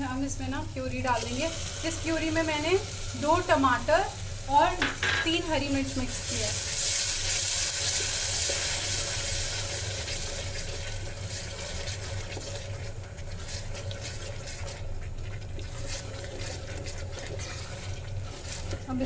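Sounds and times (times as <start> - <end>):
frying sizzle: 0.0 - 19.0
spatula scraping a pot: 11.3 - 19.0.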